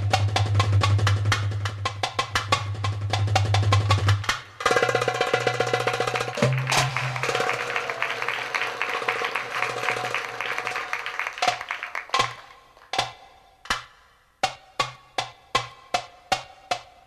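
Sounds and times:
goblet drum roll: 0.0 - 13.2.

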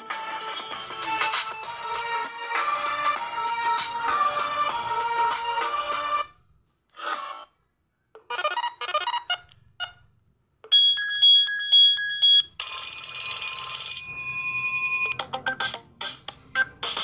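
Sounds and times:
fast rhythmic beat: 0.0 - 6.2, 15.2 - 17.0
electronic beep pattern: 10.7 - 12.6, 14.6 - 16.0
short ringtone melody: 10.8 - 15.8.

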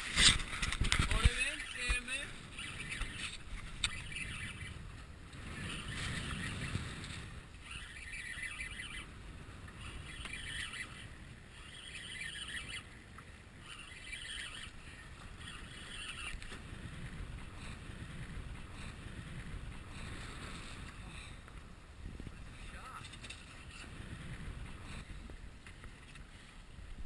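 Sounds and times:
wind: 0.0 - 27.0
fishing reel cranking: 1.1 - 4.8, 7.6 - 13.0, 13.6 - 16.5.

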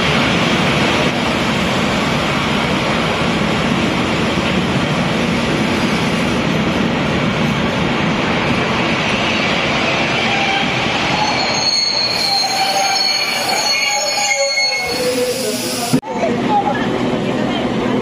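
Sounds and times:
railway carriages rumbling: 0.0 - 18.0
high metallic wheel squeals: 10.2 - 15.9.

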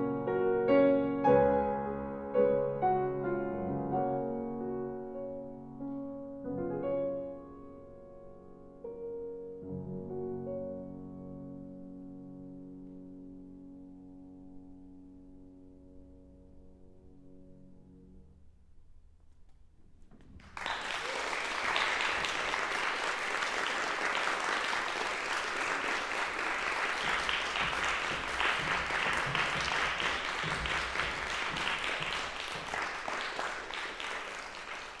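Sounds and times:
audience applauding: 20.4 - 35.0.

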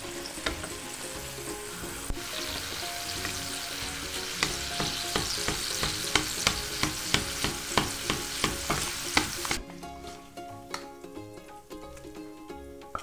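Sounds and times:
eggs sizzling in a wok: 0.0 - 10.2
soft background music: 0.0 - 13.0
spatula knocking against pan: 4.3 - 9.4.

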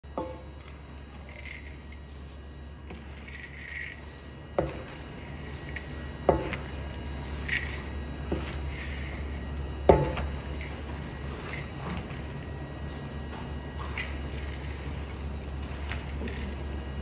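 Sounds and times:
low hum: 0.1 - 17.0
spatula scraping nuts in metal bowl: 2.9 - 12.5.

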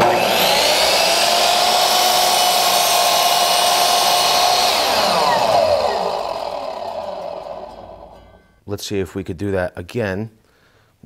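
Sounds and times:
miter saw motor whining: 0.0 - 8.4.

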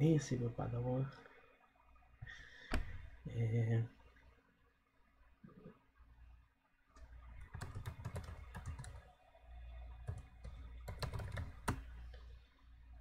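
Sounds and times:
typing on computer keyboard: 7.4 - 9.1, 10.0 - 11.9.

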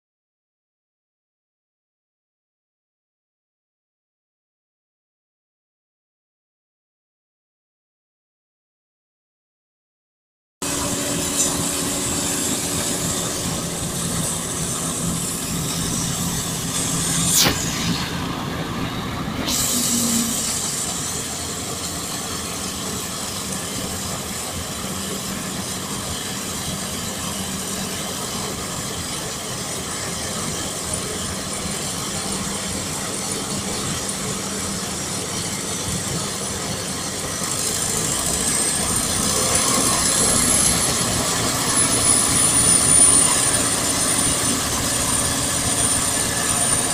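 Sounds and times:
combine harvester running: 10.6 - 46.9
high machine whine: 10.6 - 46.9.

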